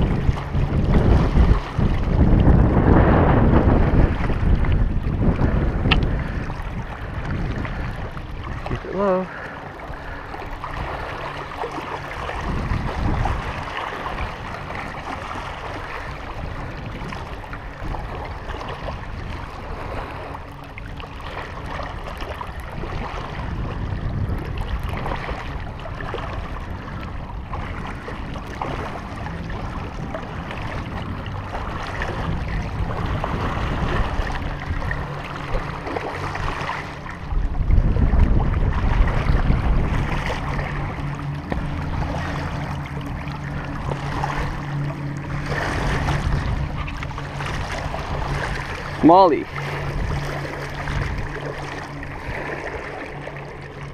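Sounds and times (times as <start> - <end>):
waves lapping against rocks: 0.0 - 53.9
wind rumbling on microphone: 0.0 - 53.9.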